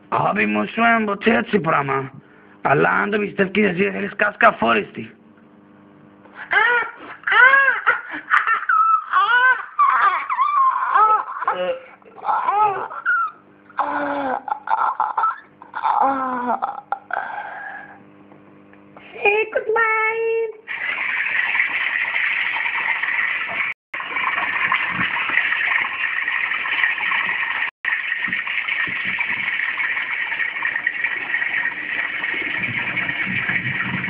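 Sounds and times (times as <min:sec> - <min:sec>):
high-pitched vocal cry: 0:06.4 - 0:17.7.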